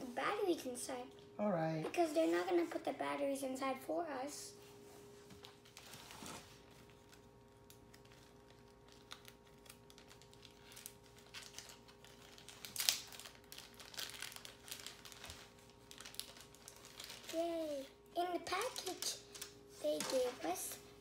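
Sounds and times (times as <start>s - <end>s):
faint steady hum: 0.0s - 21.0s
plastic packaging crinkling: 5.3s - 20.8s.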